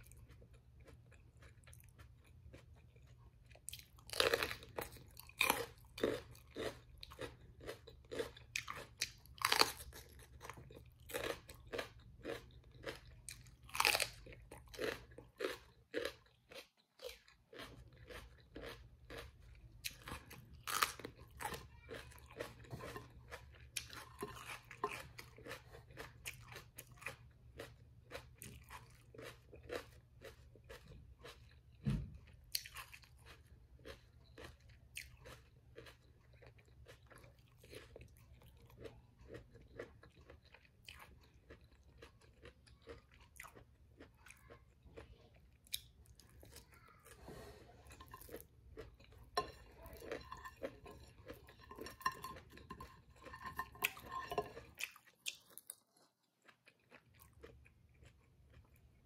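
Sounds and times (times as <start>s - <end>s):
crunchy chewing of fried food: 0.0s - 59.0s.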